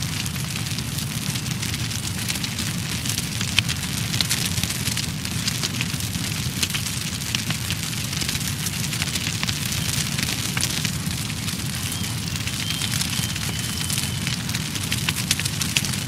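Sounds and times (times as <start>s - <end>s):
fire crackling and popping: 0.0s - 16.0s
low rumble of fire: 0.0s - 16.0s.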